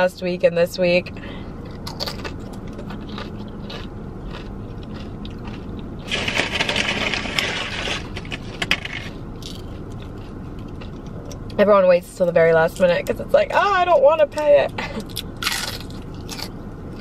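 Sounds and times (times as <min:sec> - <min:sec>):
low cabin hum: 0:00.0 - 0:17.0
chewing chip: 0:01.7 - 0:08.0, 0:09.4 - 0:11.4, 0:15.0 - 0:17.0
food packaging crinkling: 0:05.4 - 0:09.7.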